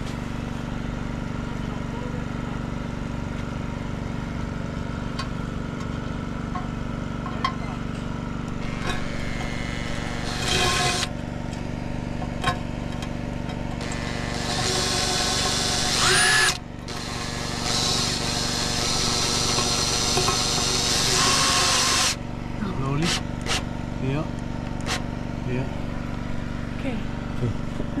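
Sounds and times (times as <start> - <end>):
cordless drill driving screws: 8.6 - 11.1, 13.8 - 22.2.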